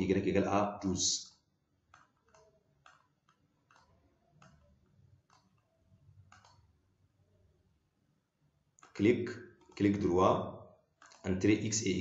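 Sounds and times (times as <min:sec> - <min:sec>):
computer mouse clicks: 0:01.2 - 0:06.8, 0:08.8 - 0:10.1, 0:10.9 - 0:11.7.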